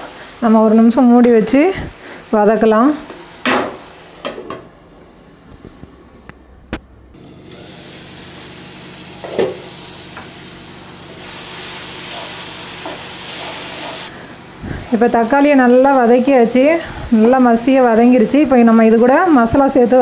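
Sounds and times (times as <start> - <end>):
vegetables sizzling in oil: 0.0 - 4.7, 7.2 - 20.0
spatula stirring in a pan: 11.7 - 14.1.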